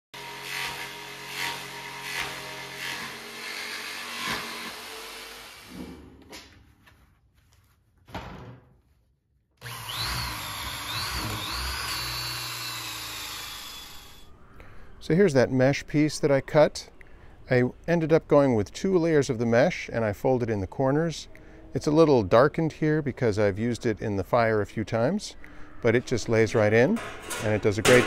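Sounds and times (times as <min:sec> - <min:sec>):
drill whining through wood: 0:00.2 - 0:05.8, 0:09.6 - 0:14.3
jigsaw cutting metal mesh: 0:00.2 - 0:05.8, 0:09.6 - 0:14.2.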